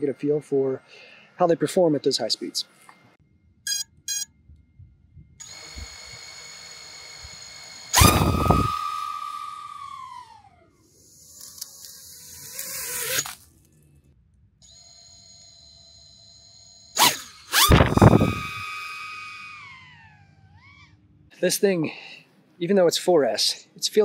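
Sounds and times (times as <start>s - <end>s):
short beeps: 3.7s - 4.4s
drone motors whining: 5.4s - 13.8s, 14.6s - 21.3s.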